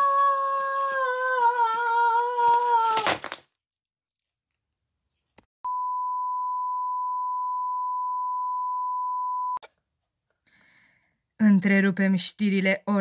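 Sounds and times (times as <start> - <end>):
steady test tone beep: 5.6 - 9.6.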